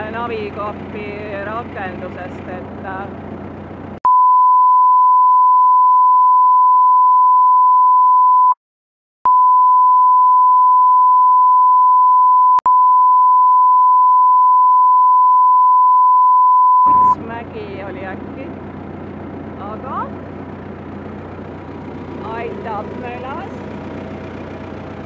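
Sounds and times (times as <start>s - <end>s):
woman speaking: 0.0s - 3.2s, 16.9s - 18.6s, 19.6s - 20.2s, 22.2s - 23.7s
censor bleep: 4.0s - 8.6s, 9.3s - 17.2s.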